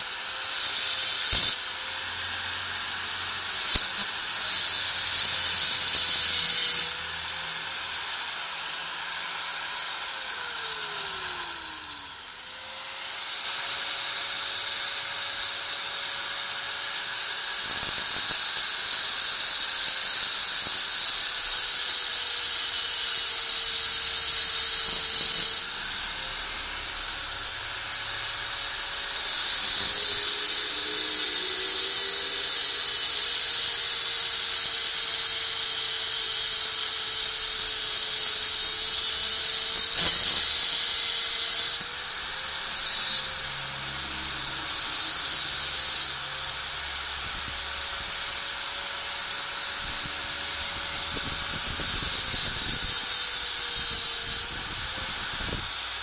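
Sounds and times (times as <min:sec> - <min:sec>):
angle grinder whining: 0:00.0 - 0:56.0
grinding disc scraping metal: 0:23.8 - 0:35.0, 0:37.3 - 0:48.5.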